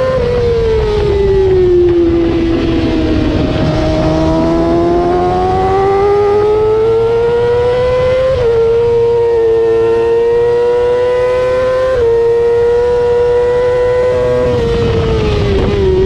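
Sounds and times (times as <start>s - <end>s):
motorcycle engine revving: 0.0s - 16.0s.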